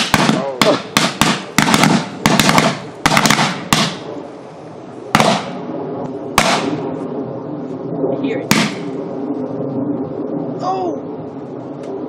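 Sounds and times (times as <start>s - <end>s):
firecrackers banging: 0.0s - 4.2s, 5.1s - 5.7s, 6.4s - 6.8s, 8.5s - 9.0s.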